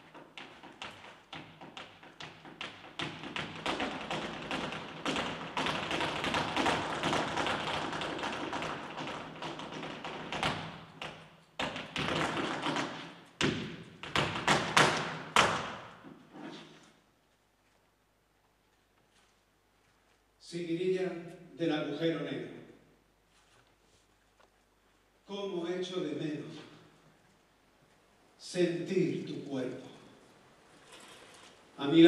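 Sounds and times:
dancer's shoes striking stage floor: 0.0 - 16.2.

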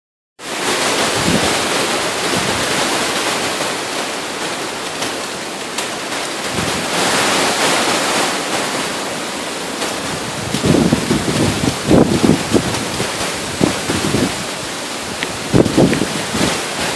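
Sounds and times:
heavy rain: 0.4 - 16.9
strong wind: 0.4 - 16.9
wind buffeting microphone: 0.8 - 3.6, 6.3 - 9.0, 9.6 - 16.9.

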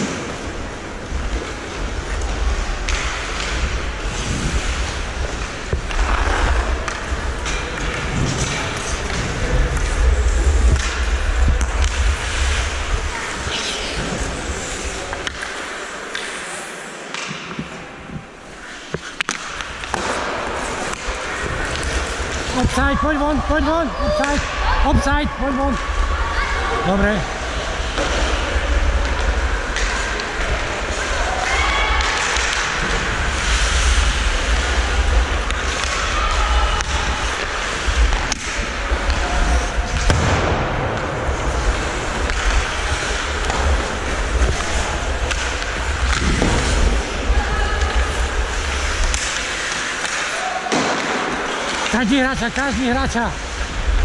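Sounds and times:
steady low rumble: 0.0 - 15.4, 19.7 - 31.4, 32.0 - 49.8, 52.3 - 54.0
ice skates scraping on ice: 0.0 - 22.8, 25.8 - 40.2, 41.2 - 54.0
wind rumble on microphone: 0.4 - 14.6
stick and puck clacks: 1.3 - 12.6, 13.5 - 22.8, 26.9 - 47.1, 47.8 - 54.0.

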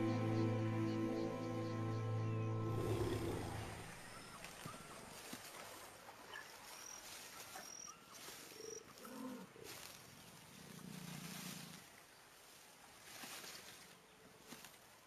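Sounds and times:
jaguar growling: 2.7 - 4.0.

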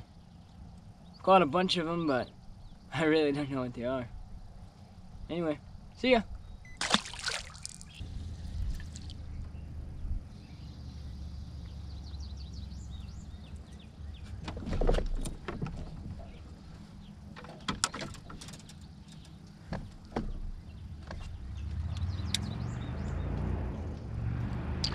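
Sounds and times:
bird chirping: 0.0 - 3.0, 5.6 - 6.8, 7.6 - 15.5, 18.3 - 23.9.

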